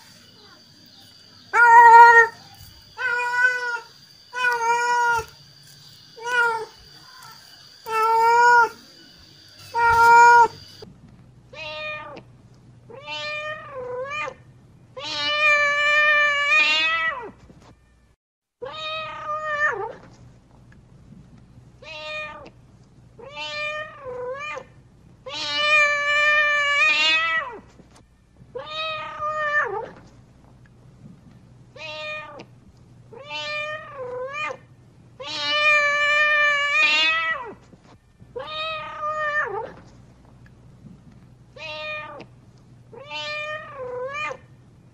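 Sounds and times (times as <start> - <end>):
cat meowing: 1.5 - 5.5, 6.1 - 8.8, 9.6 - 10.8, 11.6 - 12.2, 12.9 - 14.4, 15.0 - 17.3, 18.6 - 20.0, 23.2 - 24.7, 25.3 - 27.6, 28.6 - 30.0, 31.8 - 32.4, 33.1 - 34.6, 35.2 - 37.6, 38.4 - 39.8, 41.6 - 42.3, 42.9 - 44.5.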